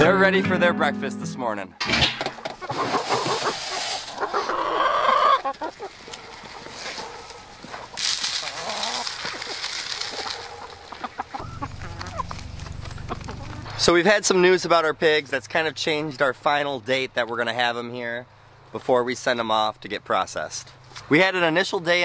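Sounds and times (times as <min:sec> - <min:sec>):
hens clucking: 0:02.2 - 0:13.8
grain hissing into trough: 0:02.9 - 0:04.2.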